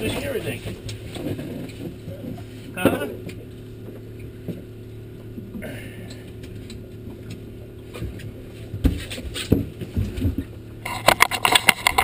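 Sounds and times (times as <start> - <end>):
boat engine idling: 0.0 - 12.0
sharp knocks and bumps: 7.9 - 12.0.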